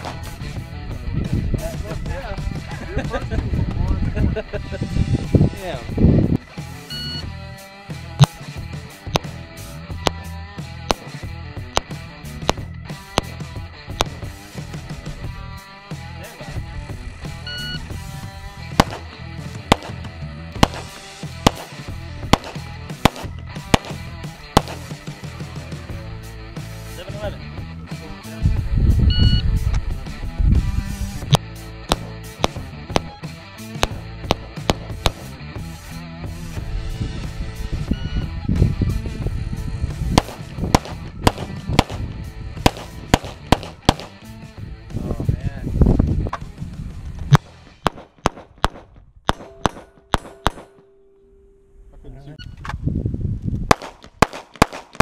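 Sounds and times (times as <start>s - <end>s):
pistol shots: 0.0s - 0.3s, 9.1s - 9.4s, 10.0s - 11.2s, 11.8s - 13.4s, 14.0s - 14.3s, 18.7s - 25.0s, 31.9s - 33.2s, 33.8s - 35.3s, 40.1s - 42.0s, 42.6s - 44.3s, 47.3s - 50.9s, 53.7s - 55.0s
background music: 0.0s - 52.2s.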